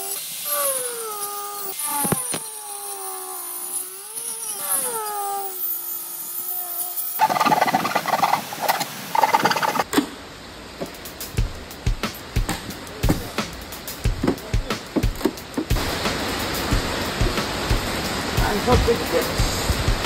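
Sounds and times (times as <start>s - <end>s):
angle grinder cutting sheet metal: 0.0s - 8.1s.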